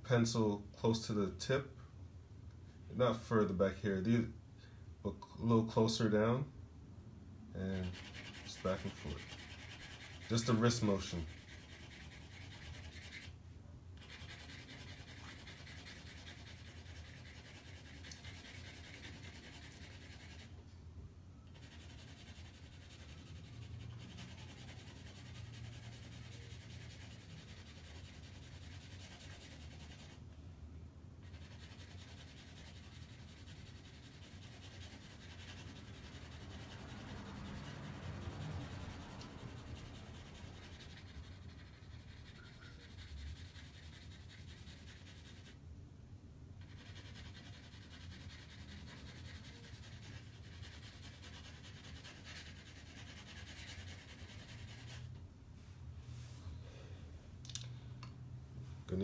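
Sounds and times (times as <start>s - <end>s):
pencil shading on paper: 7.8s - 13.3s, 14.0s - 20.5s, 21.5s - 30.2s, 31.2s - 45.6s, 46.6s - 55.0s.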